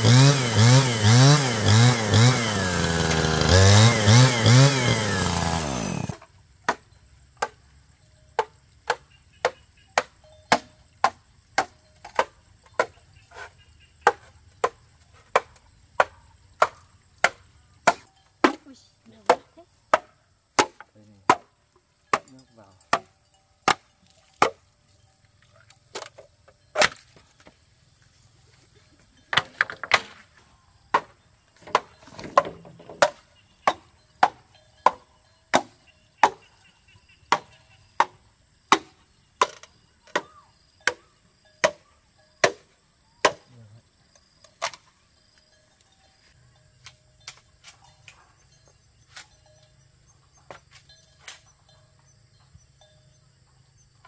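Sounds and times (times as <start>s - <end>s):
hand tool striking wood: 0.0s - 7.6s, 8.4s - 21.5s, 22.1s - 24.7s, 25.9s - 27.6s, 29.3s - 30.3s, 30.9s - 36.5s, 37.3s - 43.5s.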